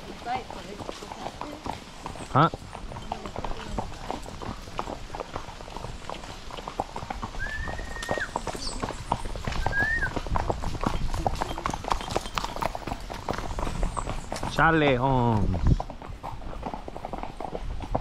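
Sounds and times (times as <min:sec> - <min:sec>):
horse hooves clopping on dirt: 0:00.0 - 0:18.0
short high whistles: 0:09.6 - 0:10.1.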